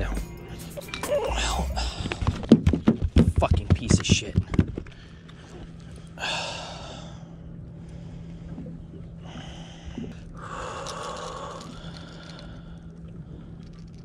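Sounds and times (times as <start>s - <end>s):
steady low hum: 0.0s - 14.0s
person breathing out hard: 6.1s - 7.4s.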